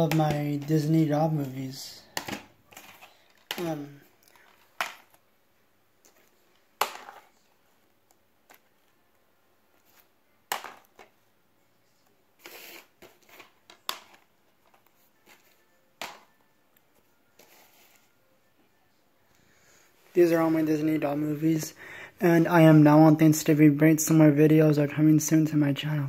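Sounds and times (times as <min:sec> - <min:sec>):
plastic cases clacking on tile: 0:02.1 - 0:05.2, 0:06.0 - 0:07.4, 0:10.5 - 0:11.1, 0:13.0 - 0:15.4.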